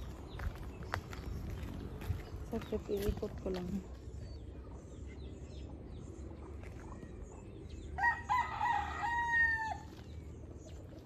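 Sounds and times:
rooster crowing: 0:08.0 - 0:09.9.

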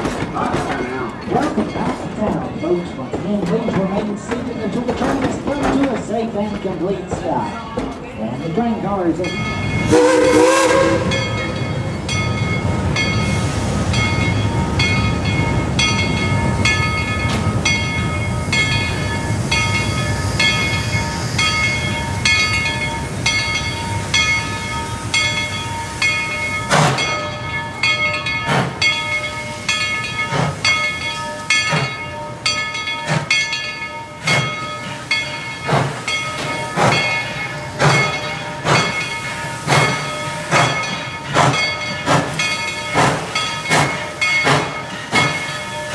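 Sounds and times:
steam locomotive bell ringing: 0:00.0 - 0:45.9
steam exhaust chuffs: 0:35.6 - 0:45.6.

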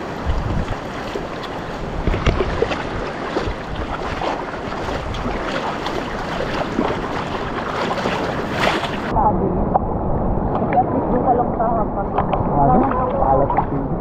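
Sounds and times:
seawater sloshing and splashing: 0:00.0 - 0:09.1
wind on microphone: 0:00.0 - 0:14.0.

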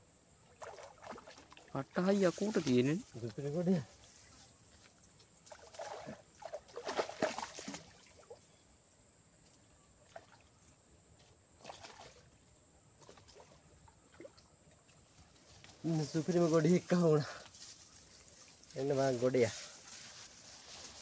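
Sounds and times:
faint high hiss: 0:00.0 - 0:05.6, 0:14.2 - 0:21.0
shallow water splashing: 0:00.5 - 0:02.9, 0:05.4 - 0:08.4, 0:11.6 - 0:12.4.

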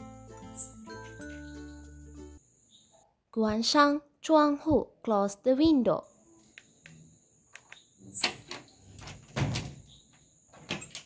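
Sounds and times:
wooden window frame scraping and knocking: 0:08.2 - 0:11.0.

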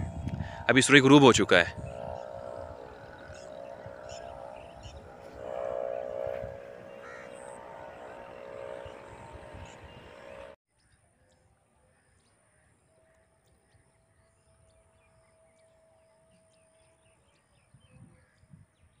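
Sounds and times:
faint high whine: 0:00.0 - 0:10.6
steady hum with rushing noise: 0:00.0 - 0:10.6
small birds chirping: 0:00.1 - 0:10.6.

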